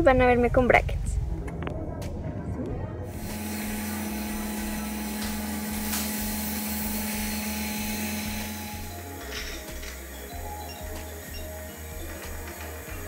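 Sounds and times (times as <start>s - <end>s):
dental suction hissing hum: 3.1s - 13.0s.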